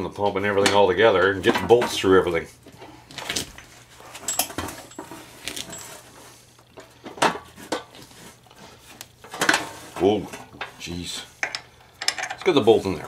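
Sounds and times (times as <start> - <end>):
metal clinks and knocks: 3.6 - 7.9, 11.4 - 12.7.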